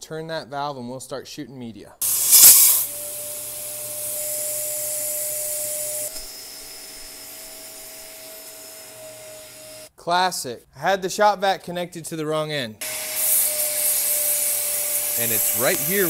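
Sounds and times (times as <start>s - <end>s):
media blaster air hiss: 2.0s - 6.3s, 12.8s - 16.0s
shop vac whining: 2.0s - 9.9s, 12.8s - 16.0s.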